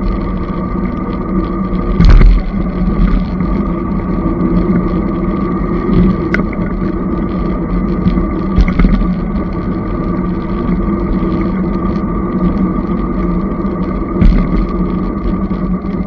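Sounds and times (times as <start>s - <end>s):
electric motor hum: 0.0s - 16.0s
tyre and wind noise: 0.0s - 16.0s
bike knocking over bumps: 2.0s - 2.6s, 8.5s - 9.1s, 14.2s - 14.7s.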